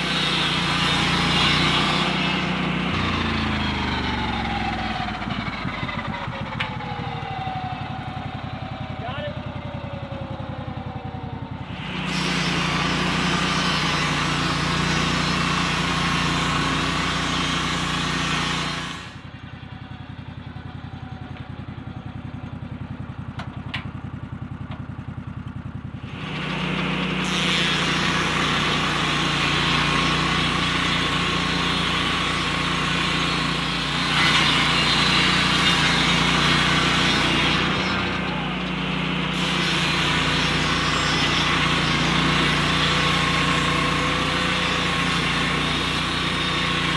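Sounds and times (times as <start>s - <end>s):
circular saw cutting log: 0.0s - 8.2s, 11.6s - 19.3s, 26.0s - 46.9s
sawmill engine running: 0.0s - 46.9s.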